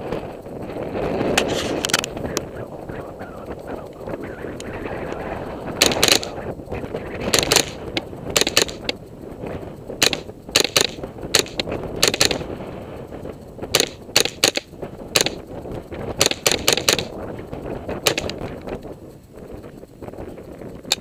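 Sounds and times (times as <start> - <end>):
rifle shots: 5.8 - 6.4, 7.2 - 8.9, 10.0 - 12.5, 13.7 - 15.4, 16.2 - 17.1, 18.0 - 18.3.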